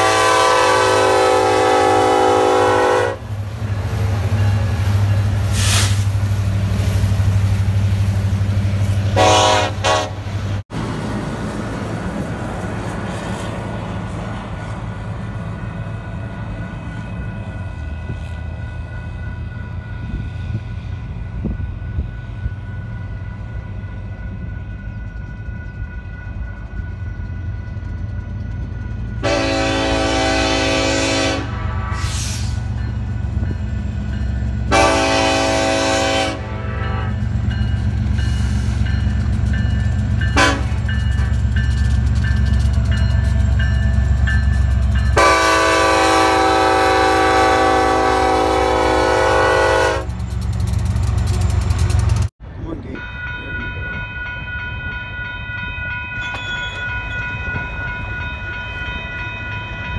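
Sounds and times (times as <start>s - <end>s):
train air horn blasts: 0.0s - 3.2s, 9.1s - 10.3s, 29.2s - 32.7s, 34.7s - 37.2s, 40.3s - 40.9s, 45.1s - 50.1s
train rumbling: 0.0s - 59.9s.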